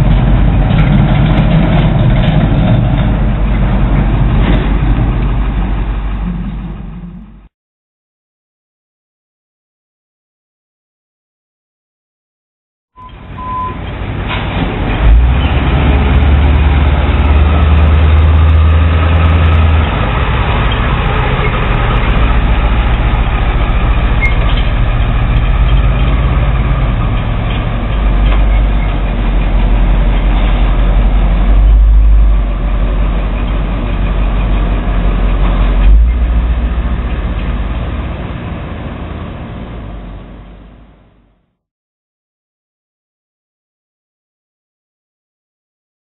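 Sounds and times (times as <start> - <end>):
truck diesel engine pulling away: 0.0 - 7.5, 13.0 - 41.2.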